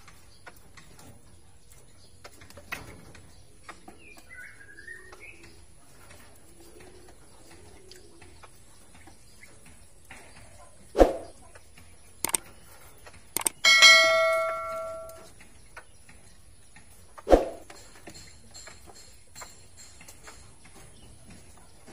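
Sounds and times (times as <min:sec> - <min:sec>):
clicks: 0:12.2 - 0:12.5, 0:13.4 - 0:15.3
bell chime: 0:13.6 - 0:15.3.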